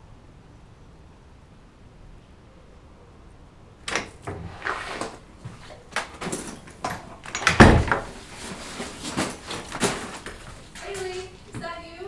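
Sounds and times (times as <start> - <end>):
door knob and lock rattling: 3.9 - 5.2, 5.9 - 8.2
door shutting with heavy thud: 3.9 - 11.7.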